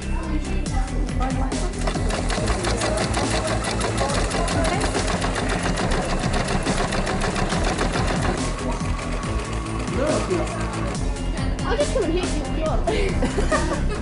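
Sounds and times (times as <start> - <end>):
sewing machine stitching: 1.6 - 11.2.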